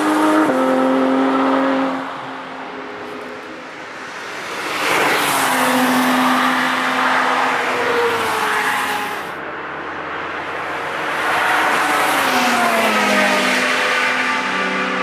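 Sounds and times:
race car engine passing by: 10.4 - 15.0.

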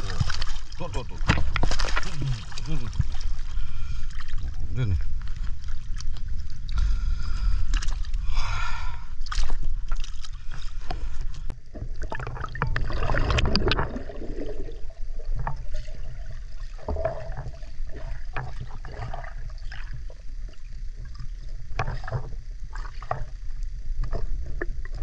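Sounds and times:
steady low rumble: 0.0 - 25.0
water sloshing and gurgling: 0.0 - 25.0.

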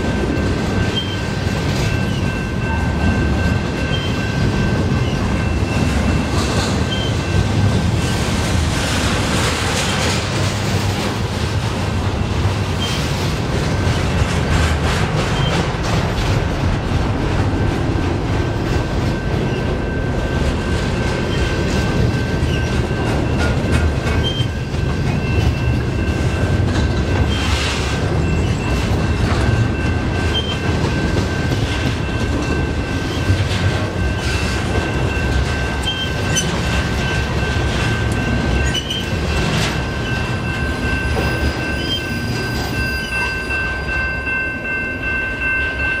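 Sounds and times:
steel wheels rumbling on rail: 0.0 - 46.0
high-pitched wheel squeal: 41.0 - 44.0.

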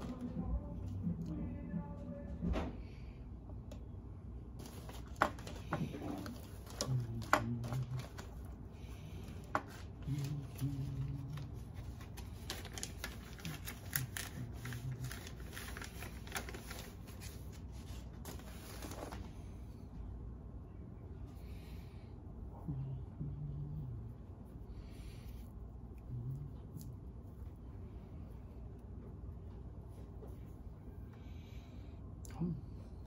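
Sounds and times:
packaging crinkling in hands: 10.0 - 19.3.

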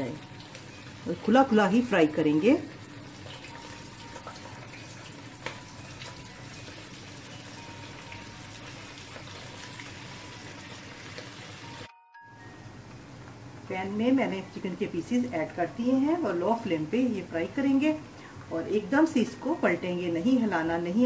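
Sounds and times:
chicken sizzling in hot oil: 0.0 - 11.9.

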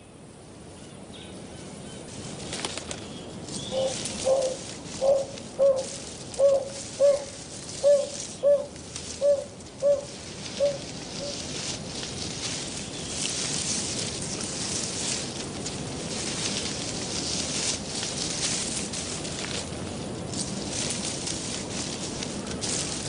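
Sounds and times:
background hiss: 0.0 - 23.0
bird hooting softly: 3.6 - 11.5.

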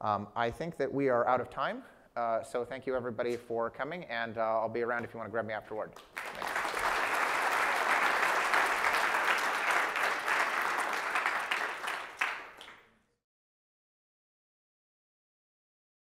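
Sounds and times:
crowd applauding: 6.0 - 12.9.

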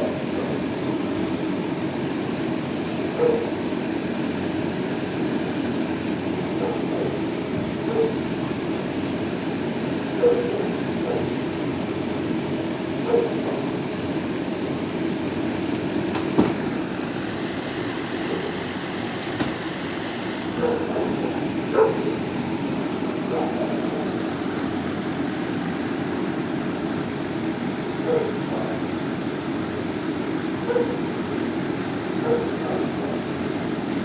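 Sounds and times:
steady room hum: 0.0 - 34.0
faint dog barks: 3.2 - 3.6, 6.6 - 7.2, 7.8 - 8.2, 10.2 - 11.4, 13.0 - 13.6, 20.6 - 22.2, 23.3 - 24.2, 28.0 - 28.8, 30.6 - 31.0, 32.2 - 33.3.

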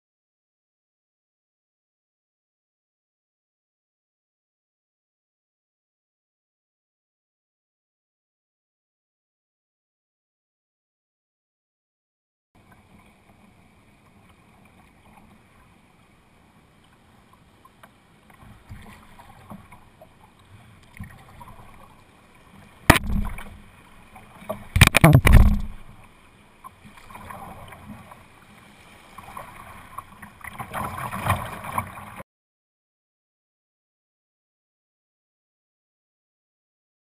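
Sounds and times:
water lapping against hull: 12.6 - 32.2
paddle strokes: 16.8 - 32.2
rushing water: 17.8 - 32.2
knocks on kayak: 22.9 - 23.5, 24.8 - 25.9.

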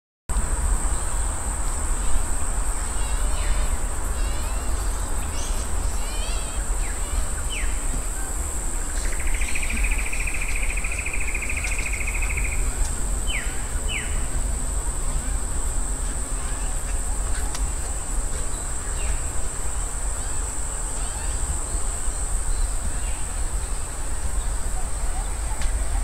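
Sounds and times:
insects droning: 0.3 - 26.0
bird-like chirps: 8.9 - 14.3.

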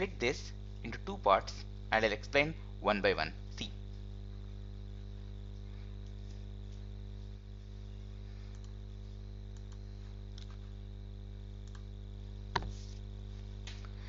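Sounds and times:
electrical hum and buzz: 0.0 - 14.0
faint high whine: 0.0 - 14.0
faint clicks: 8.5 - 8.8, 11.6 - 11.9.

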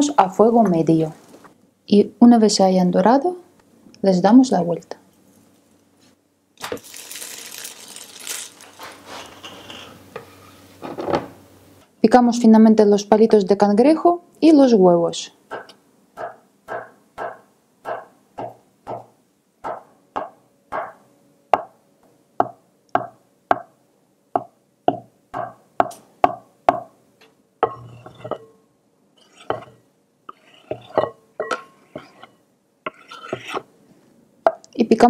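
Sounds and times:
knife scraping board: 8.9 - 10.6, 27.7 - 28.5, 29.2 - 33.7.

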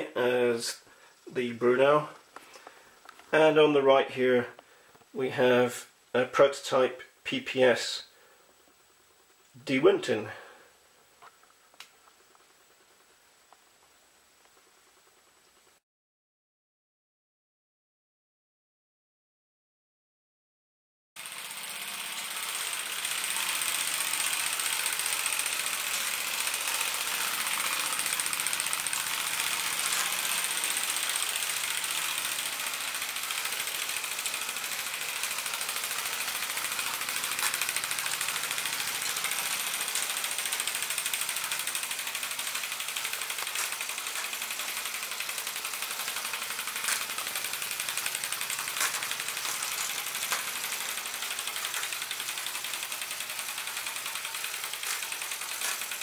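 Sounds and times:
steam hissing: 22.2 - 56.0
sharp clicks: 35.2 - 56.0.

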